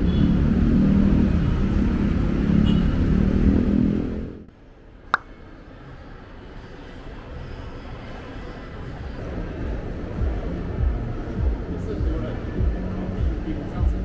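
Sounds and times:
passing road traffic: 0.0 - 4.5.

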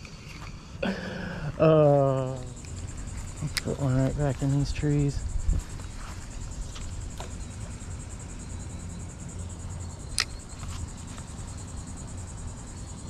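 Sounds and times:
high-pitched insect trilling: 0.0 - 13.0
sharp click: 10.1 - 10.8.

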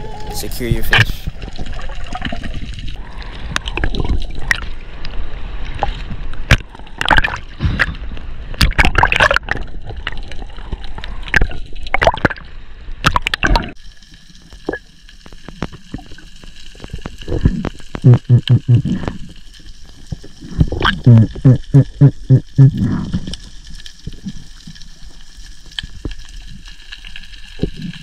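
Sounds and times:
water sloshing and gurgling: 0.0 - 28.0.

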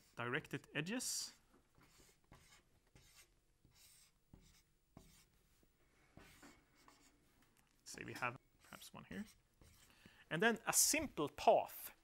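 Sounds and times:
marker scratching on whiteboard: 1.2 - 10.1.

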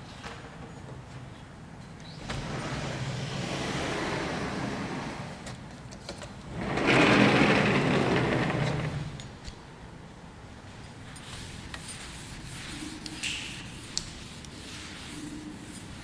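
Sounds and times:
duster rubbing chalkboard: 11.2 - 16.0.

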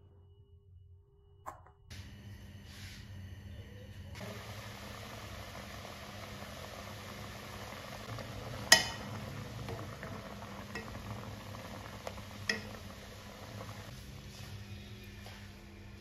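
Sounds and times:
water boiling and bubbling: 4.2 - 14.6
spoon clinking against pot: 8.7 - 9.1.

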